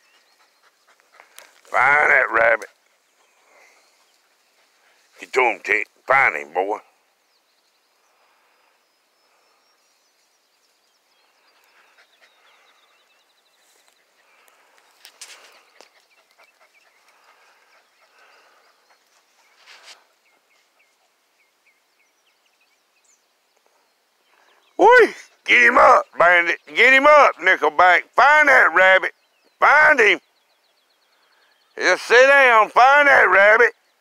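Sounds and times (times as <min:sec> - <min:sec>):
small birds calling: 0:00.0 - 0:34.0
rustling in brush: 0:02.7 - 0:05.3, 0:13.4 - 0:21.2.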